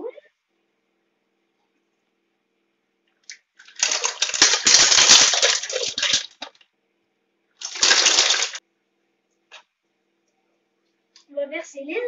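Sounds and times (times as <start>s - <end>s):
mussel shells clattering in pot: 3.6s - 6.6s, 7.6s - 8.6s.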